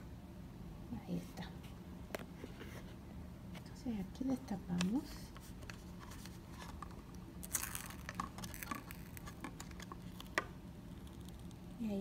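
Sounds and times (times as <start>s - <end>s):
paper rustling: 5.4s - 10.4s.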